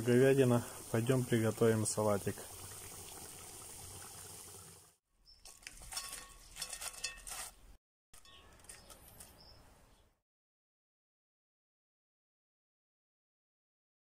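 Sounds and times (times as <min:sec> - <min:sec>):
stew simmering: 0:00.0 - 0:07.6
greens rustling in a bowl: 0:05.4 - 0:07.7.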